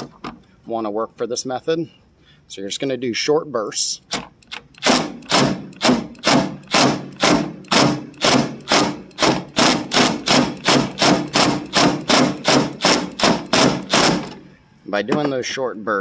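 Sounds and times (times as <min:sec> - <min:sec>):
impact driver bursts: 0:04.1 - 0:14.5.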